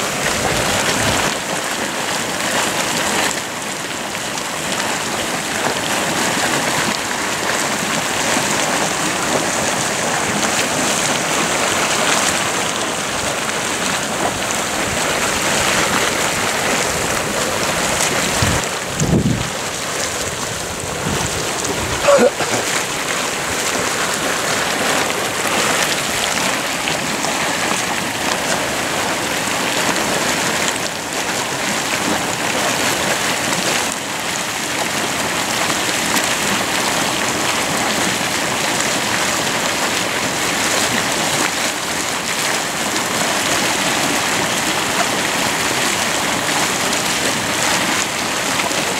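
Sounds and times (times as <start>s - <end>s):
mud pot bubbling: 0.0s - 48.9s.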